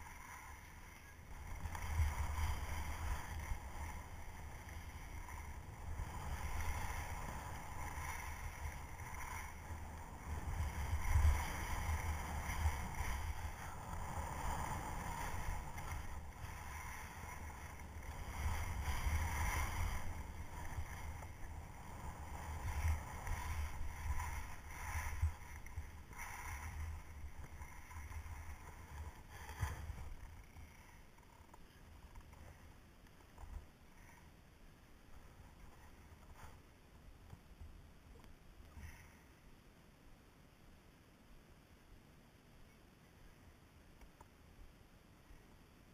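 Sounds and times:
wind buffeting microphone: 0.0 - 31.0
skis scraping across snow: 0.0 - 39.3.

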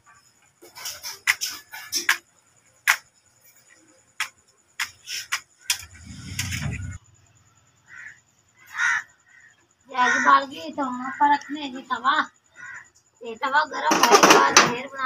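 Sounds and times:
gas burner flame rush: 5.8 - 7.0.

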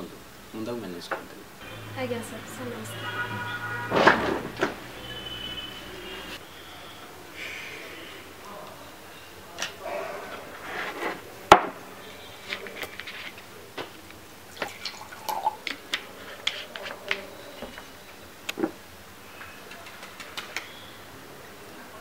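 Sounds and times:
water pouring into glass: 14.5 - 15.8.

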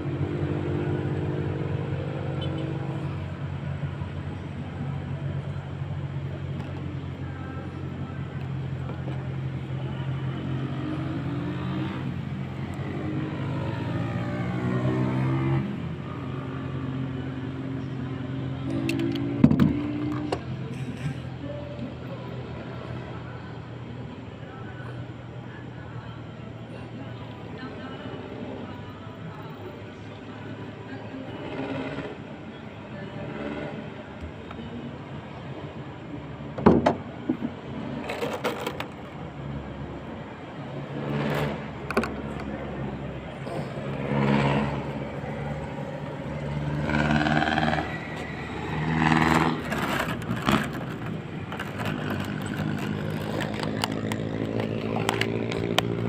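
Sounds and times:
low engine drone: 0.0 - 56.0.

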